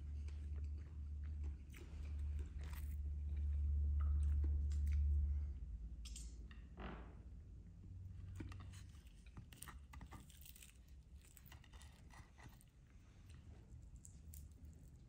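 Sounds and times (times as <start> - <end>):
chewing: 0.0 - 5.2, 8.4 - 15.0.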